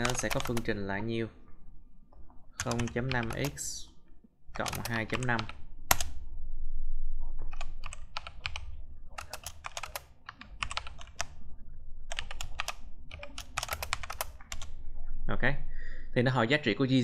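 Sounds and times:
typing on computer keyboard: 0:00.0 - 0:00.7, 0:02.6 - 0:03.6, 0:04.6 - 0:06.1, 0:07.5 - 0:11.4, 0:12.1 - 0:14.7.

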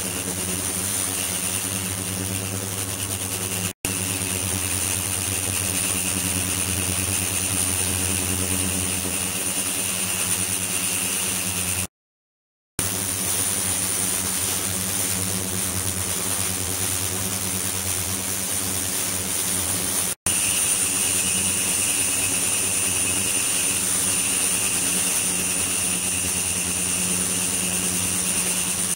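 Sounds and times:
high whine: 0:00.0 - 0:11.9, 0:20.3 - 0:28.9
lower whine: 0:20.3 - 0:28.9.

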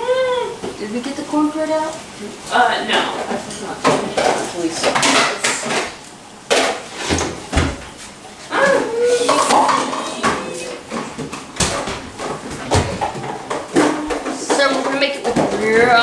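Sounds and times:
knocks and clatters in cabinet: 0:06.6 - 0:07.9, 0:09.3 - 0:16.0.

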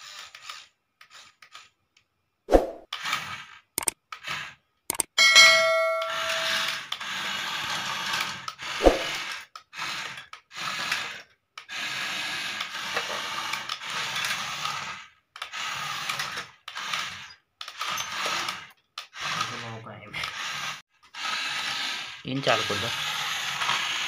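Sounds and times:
toy motor and gears whirring: 0:00.0 - 0:02.1, 0:02.8 - 0:24.0
ringing tone: 0:05.2 - 0:06.8.

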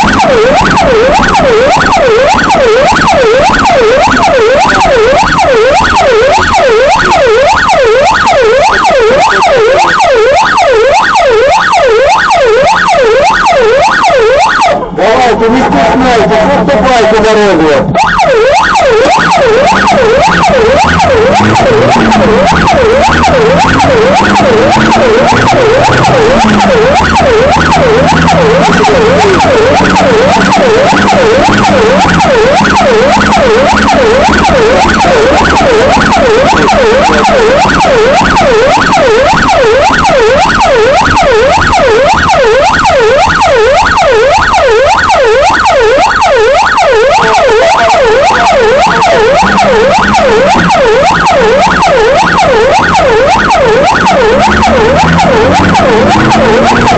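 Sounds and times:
electronic siren yelp: 0:00.0 - 0:56.9.

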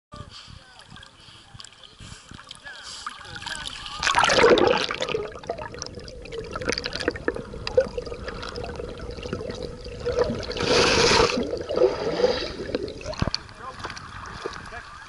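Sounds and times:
muffled water sloshing and gurgling: 0:00.5 - 0:15.0
splash into water: 0:03.2 - 0:05.4
splashing hiss: 0:10.5 - 0:13.3.

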